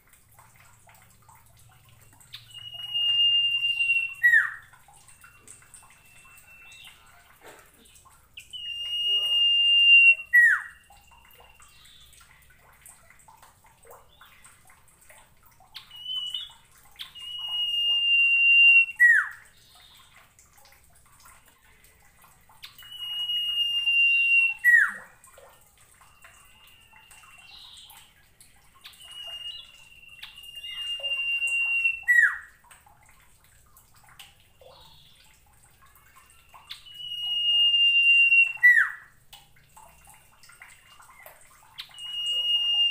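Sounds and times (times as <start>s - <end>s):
bird whistling song: 2.0s - 7.2s, 8.4s - 12.2s, 15.8s - 20.1s, 22.6s - 25.1s, 26.0s - 28.1s, 28.8s - 32.6s, 36.3s - 39.1s, 41.8s - 42.9s.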